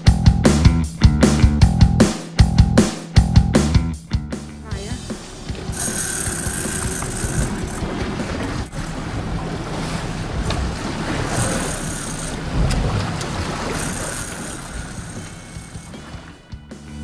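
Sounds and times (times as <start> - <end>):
choppy sea washing: 4.9 - 16.5
wind buffeting microphone: 6.8 - 16.3.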